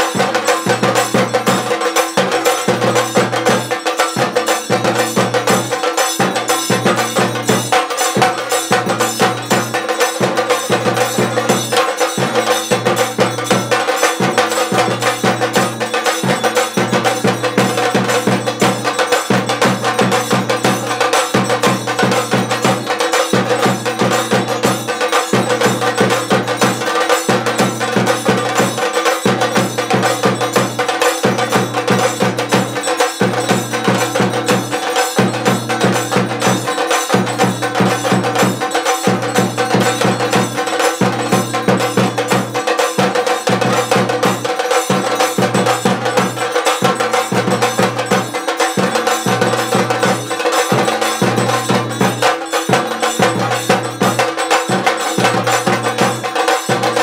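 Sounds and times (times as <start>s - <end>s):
barrel drums beaten with sticks: 0.0s - 57.0s
brass hand cymbals clashing: 0.0s - 57.0s.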